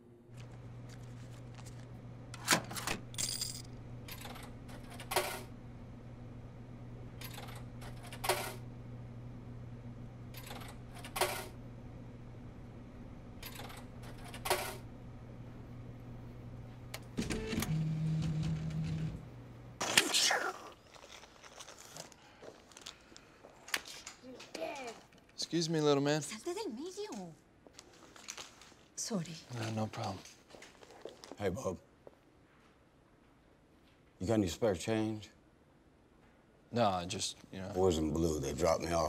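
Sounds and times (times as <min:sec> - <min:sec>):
vending machine humming: 0:00.0 - 0:24.9
vending machine buzzing: 0:00.1 - 0:20.8
coins clinking into machine: 0:02.6 - 0:05.5, 0:07.2 - 0:08.6, 0:10.3 - 0:11.6, 0:13.4 - 0:14.8.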